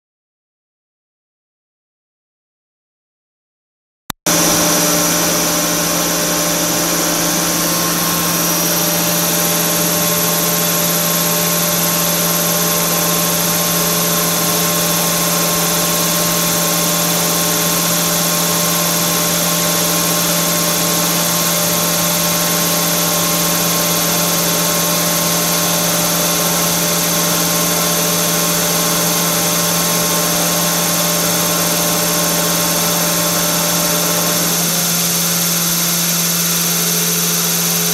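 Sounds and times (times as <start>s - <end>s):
grinding machine hum: 4.3s - 37.9s.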